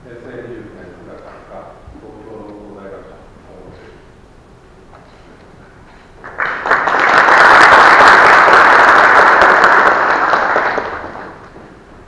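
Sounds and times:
audience applauding: 6.2 - 11.6.

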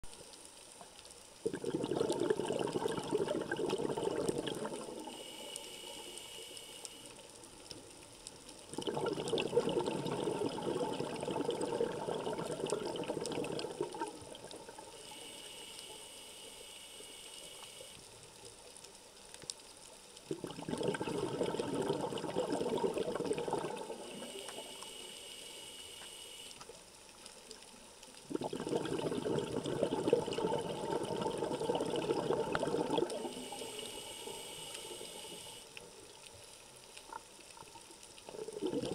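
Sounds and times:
exhaled bubbles underwater: 1.4 - 5.3, 8.7 - 15.1, 20.3 - 24.8, 28.2 - 36.2, 37.0 - 38.9
regulator breath hiss: 5.0 - 7.3, 15.0 - 18.0, 24.1 - 26.6, 33.3 - 35.7.

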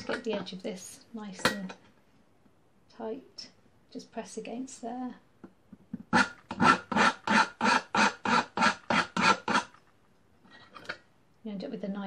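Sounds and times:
hand file rasping on metal: 6.1 - 9.8.

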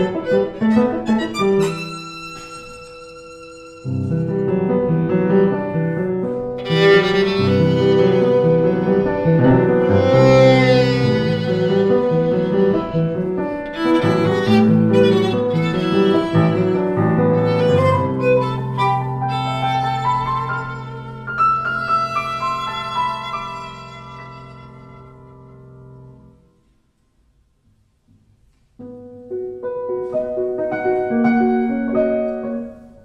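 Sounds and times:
violin playing: 0.0 - 5.6, 6.6 - 25.3
piano chords: 0.0 - 26.7, 28.8 - 33.0.

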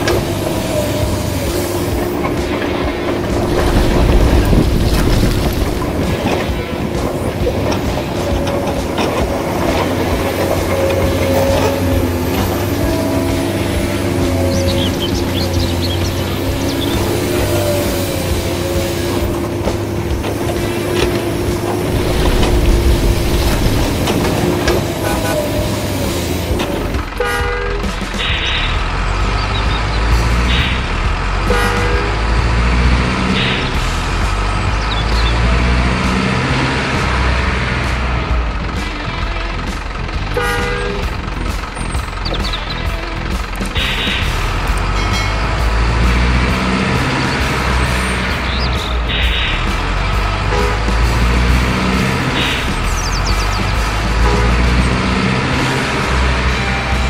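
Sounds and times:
horn toot: 0.0 - 34.5, 40.3 - 41.3, 42.3 - 57.0
gear clatter: 0.0 - 35.4
diesel truck engine running: 0.0 - 57.0.

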